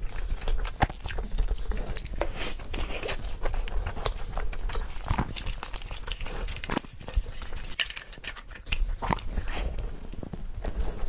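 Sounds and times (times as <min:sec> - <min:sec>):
paper baking cup crinkling: 0:00.0 - 0:11.0
wet chewing: 0:00.0 - 0:11.0.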